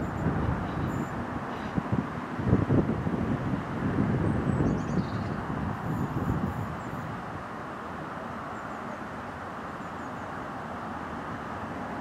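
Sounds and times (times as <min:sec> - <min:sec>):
diesel railcars rumbling: 0:00.0 - 0:04.6.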